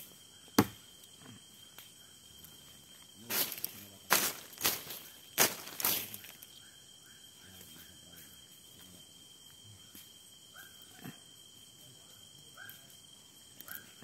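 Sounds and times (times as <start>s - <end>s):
high-pitched insect drone: 0.0s - 14.0s
machete knocking on wooden log: 0.6s - 0.8s.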